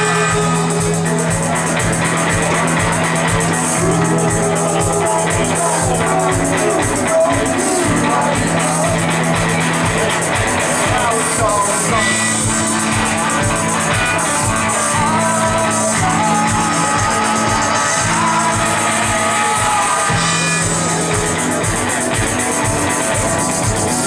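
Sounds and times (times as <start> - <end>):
drum kit: 0.0 - 24.0
electric guitar: 0.0 - 24.0.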